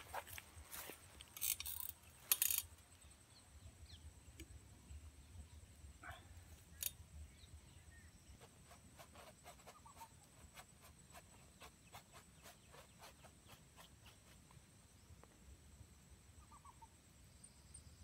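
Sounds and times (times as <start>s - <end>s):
faint bird call: 16.4s - 17.0s.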